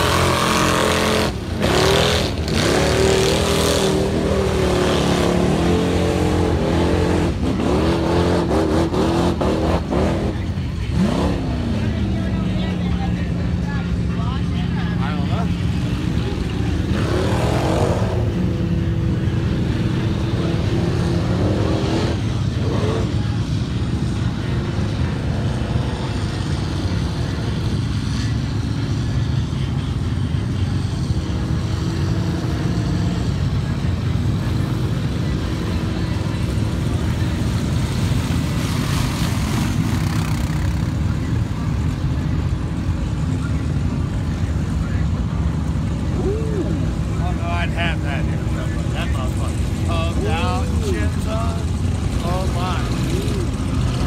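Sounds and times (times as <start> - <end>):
engine revving: 0.0 - 12.5, 15.0 - 27.6
off-road engines rumbling: 0.0 - 54.0.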